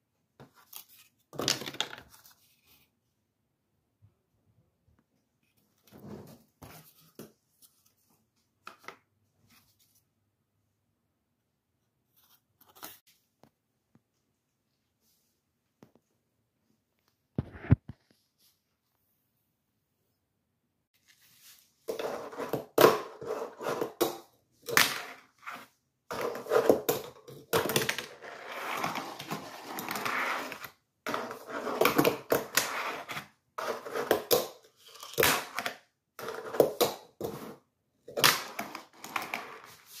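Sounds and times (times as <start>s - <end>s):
fingerboard wheels rolling on plywood: 25.4s - 34.4s.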